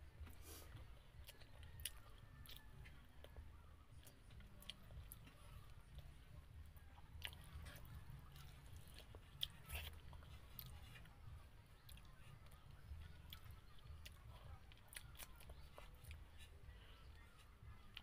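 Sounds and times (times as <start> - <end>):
person chewing: 0.1 - 18.0.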